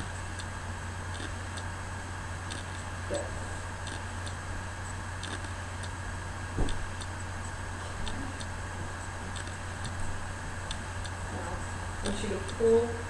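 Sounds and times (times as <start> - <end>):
faint regular ticking: 0.0 - 12.9
steady low hum: 0.0 - 13.0
soft thump: 6.6 - 6.9.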